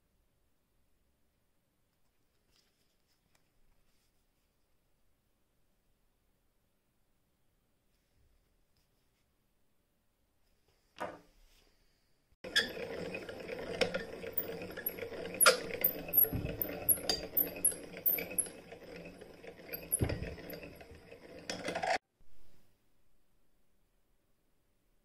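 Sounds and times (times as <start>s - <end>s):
sewing machine clattering: 12.4s - 22.0s.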